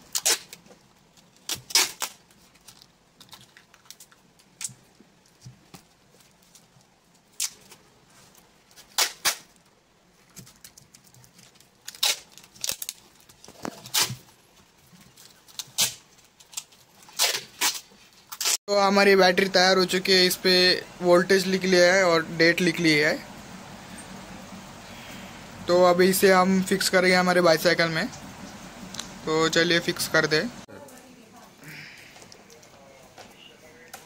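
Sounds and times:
masking tape ripping off roll: 0.0 - 4.8, 7.2 - 7.8, 8.7 - 9.7, 10.4 - 18.6.

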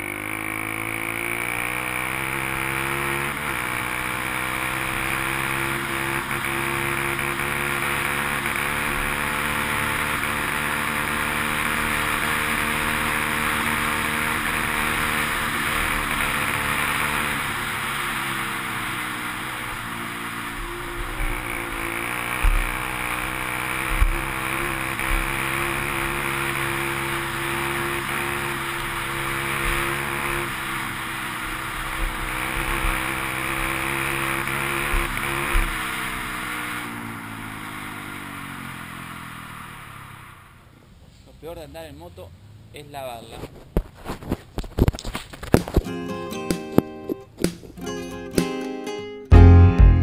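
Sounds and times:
motorcycle engine cruising: 0.0 - 41.0, 41.9 - 48.5
short low thumps: 49.3 - 50.0.

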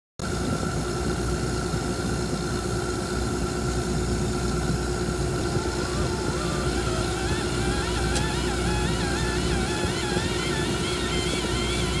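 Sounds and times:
cable jetting machine drone: 1.1 - 12.0
high whine: 4.5 - 12.0.

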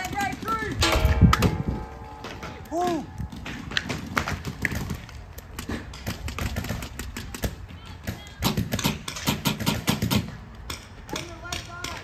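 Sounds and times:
paintball markers firing: 3.5 - 12.0.

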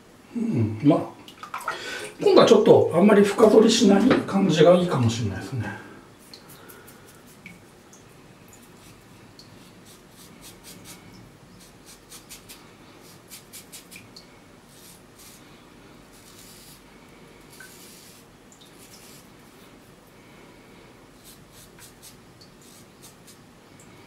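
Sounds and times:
razor scraping stubble: 11.6 - 14.1, 16.1 - 16.8, 21.2 - 23.4.

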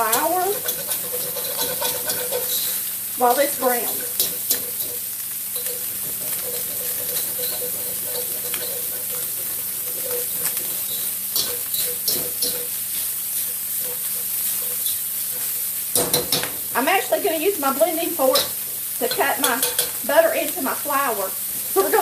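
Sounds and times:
utensil scraping a pan: 0.0 - 2.9, 3.7 - 16.5
meat sizzling in a skillet: 0.0 - 22.0.

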